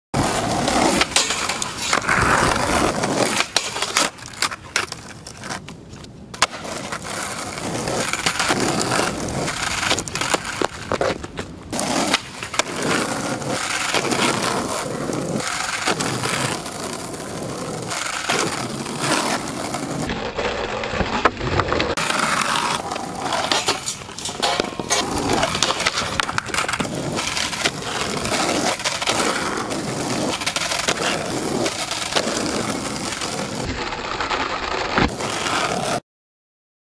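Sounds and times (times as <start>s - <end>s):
skateboard wheels rolling on asphalt: 0.2s - 36.0s
skateboard landing clacks: 18.0s - 33.4s.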